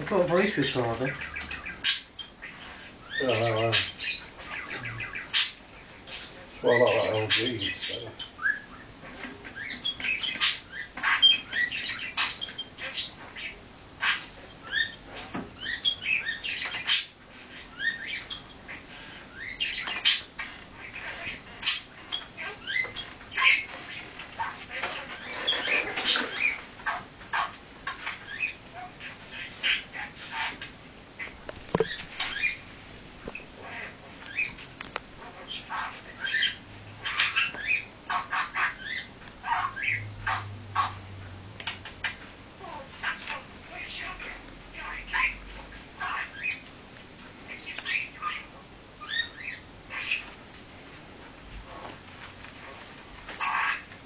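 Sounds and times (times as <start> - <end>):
budgerigar chirping and warbling: 0.2 - 8.9, 9.5 - 30.6, 35.2 - 41.0, 43.0 - 46.6, 47.5 - 50.3, 53.4 - 53.9
sharp bird calls: 0.2 - 30.6.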